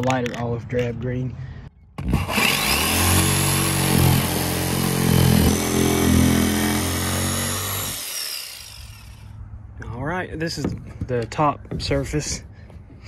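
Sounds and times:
jigsaw cutting wood: 2.0s - 9.3s.

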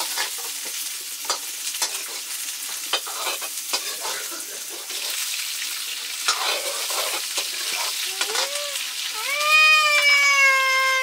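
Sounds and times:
spoon scraping a pan: 0.0s - 5.2s, 6.2s - 8.6s
curry sizzling in a pan: 0.0s - 11.0s.

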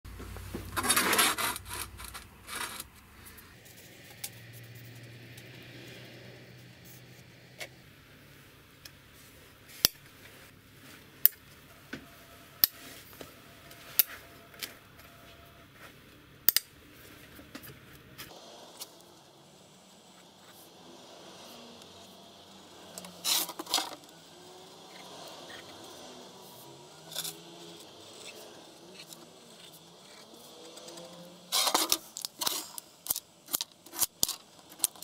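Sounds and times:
scraping and rustling on wooden bench: 0.2s - 2.9s.

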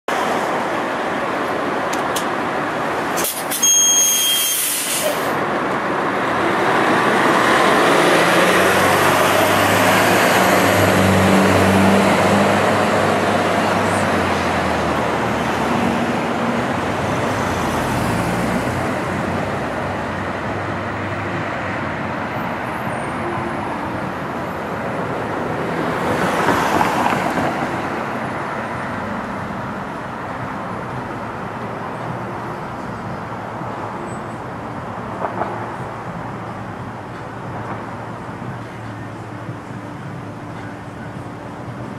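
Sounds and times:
passing car traffic: 0.1s - 41.9s
bus air brake hiss: 3.2s - 5.4s
bus engine revving: 4.8s - 20.0s.

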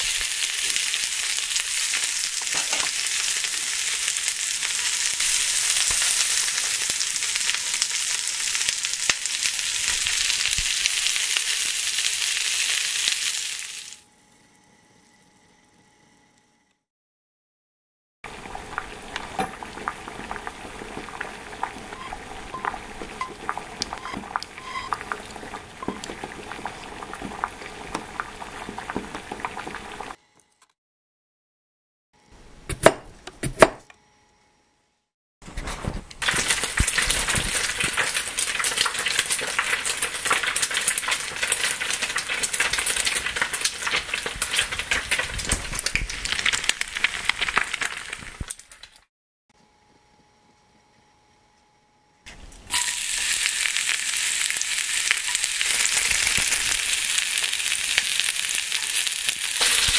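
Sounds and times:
potatoes deep-frying in oil: 0.0s - 14.0s, 18.3s - 30.2s, 36.2s - 49.1s, 52.3s - 59.9s
liquid bubbling in a pot: 18.3s - 30.2s
knife chopping on cutting board: 32.7s - 33.9s.

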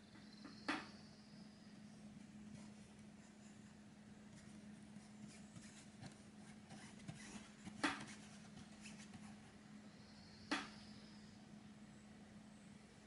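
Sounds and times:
steady low hum: 0.0s - 13.0s
drawing tool scratching on silk: 4.4s - 9.3s.

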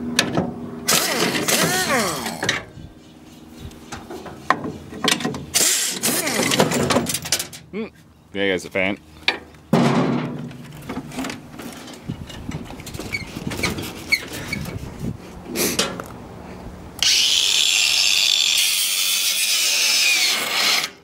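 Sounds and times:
cut-off wheel grinding metal: 0.8s - 2.7s, 5.4s - 7.6s, 17.0s - 21.0s.

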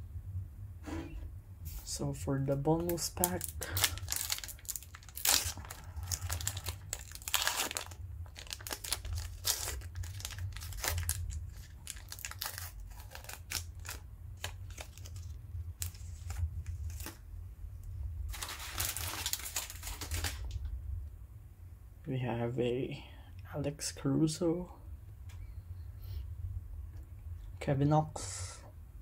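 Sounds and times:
plastic wrapper tearing and crinkling: 2.8s - 17.2s, 18.3s - 20.6s.

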